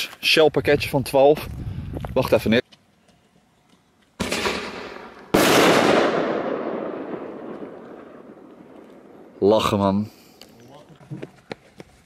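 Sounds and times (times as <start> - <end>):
firework launch bang: 4.2 - 7.8.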